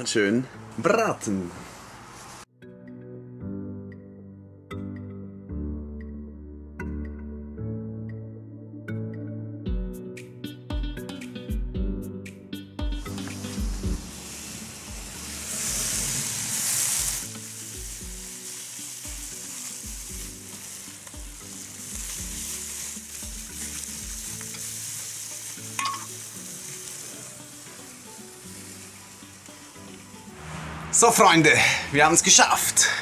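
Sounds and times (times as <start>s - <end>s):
sausages sizzling on a grill: 0.0s - 2.5s, 13.1s - 33.0s
sharp crack of embers: 13.1s - 30.3s.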